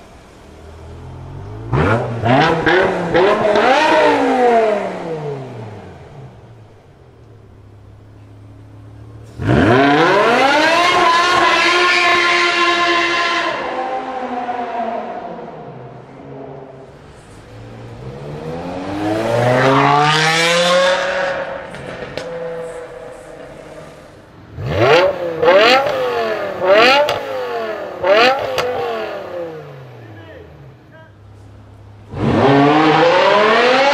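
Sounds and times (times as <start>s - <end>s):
car engine revving and idling: 0.0s - 33.9s
exhaust cracks: 16.8s - 29.4s.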